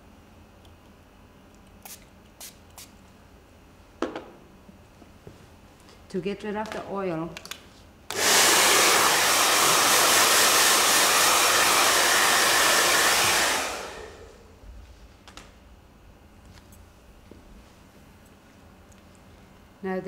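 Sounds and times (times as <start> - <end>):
hair dryer blowing: 8.1 - 14.5.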